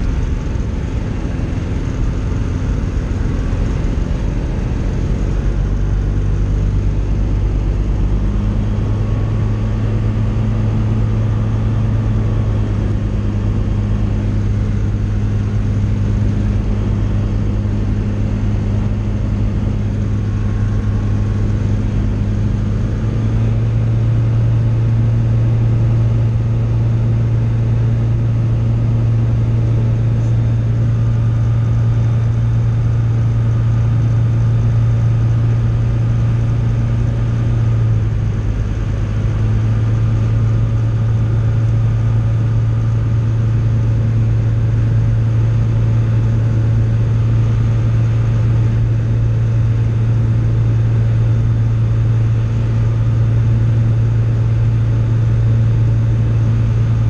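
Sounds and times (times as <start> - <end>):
light aircraft engine droning: 0.0 - 57.0.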